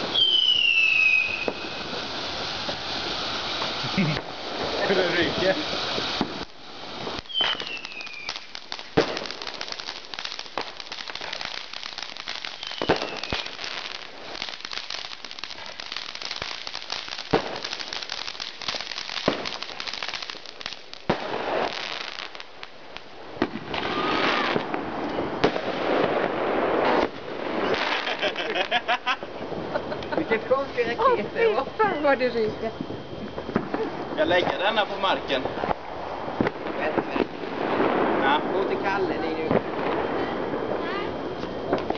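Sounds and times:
falling firework whistles: 0.0 - 22.7, 23.4 - 30.1
firework bangs: 0.0 - 30.2, 32.8 - 41.9
fountain firework crackling: 0.0 - 32.6, 33.6 - 41.9.

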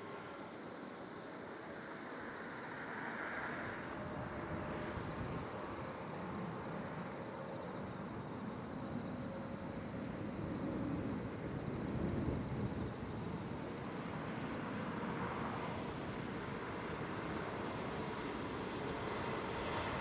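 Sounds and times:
distant high-speed trains rumbling: 0.0 - 20.0.

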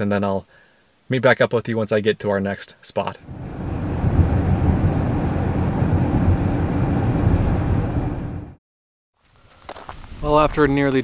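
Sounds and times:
road rumble inside car cabin: 3.3 - 8.6.

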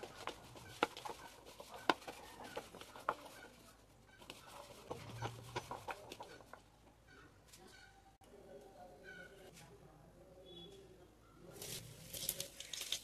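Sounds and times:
soft rustling in plastic bowl: 0.0 - 6.8.

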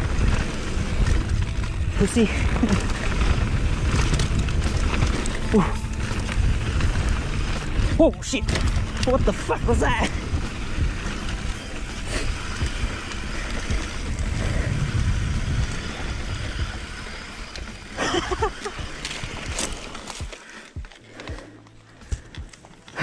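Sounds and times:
wind buffeting microphone: 0.0 - 18.4
bike clicks and rattles: 0.0 - 23.0
bike tyres on dirt: 0.0 - 23.0.

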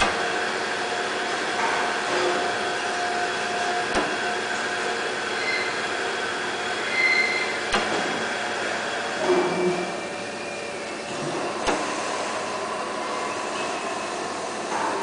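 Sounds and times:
high squealing tones: 5.4 - 5.8, 6.9 - 7.6.

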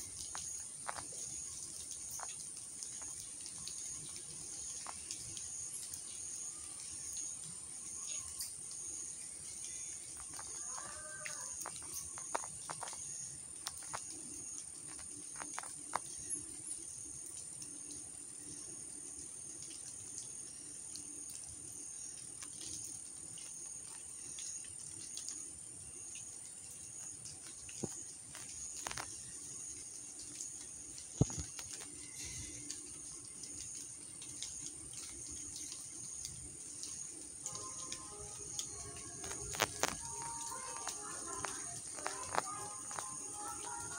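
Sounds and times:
insect drone: 0.0 - 43.9
pulsing insect chirp: 0.0 - 43.9
light clicks and ticks: 26.1 - 43.9.

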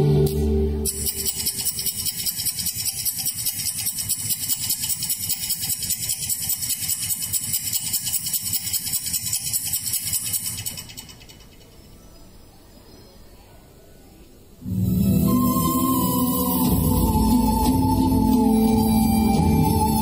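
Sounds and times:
rapid mechanical rattling: 0.9 - 12.0.

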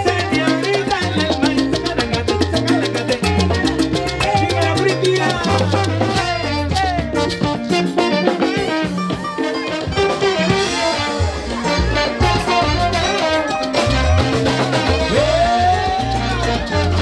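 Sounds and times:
salsa band playing: 0.0 - 17.0
trombones: 5.3 - 17.0.

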